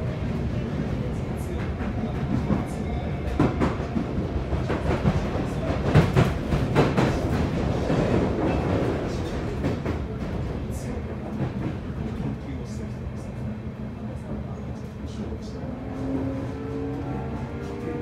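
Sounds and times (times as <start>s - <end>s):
train wheels rumbling: 0.0s - 13.5s.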